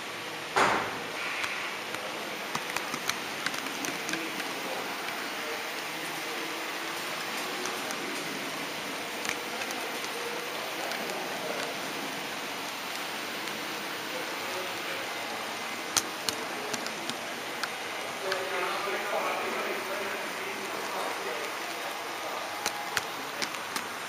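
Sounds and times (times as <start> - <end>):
sharp clicks: 0.6 - 5.2, 15.9 - 18.5, 22.6 - 24.0
model train rolling on track: 1.1 - 24.0.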